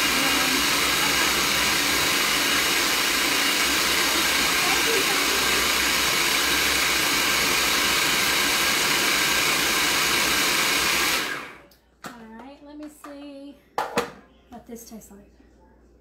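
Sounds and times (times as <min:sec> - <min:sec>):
food processor motor running: 0:00.0 - 0:11.6.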